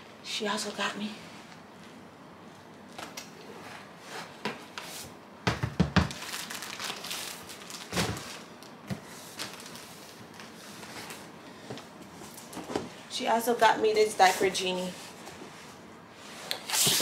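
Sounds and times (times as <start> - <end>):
cardboard and plastic rustling: 5.8 - 13.0, 16.6 - 17.0.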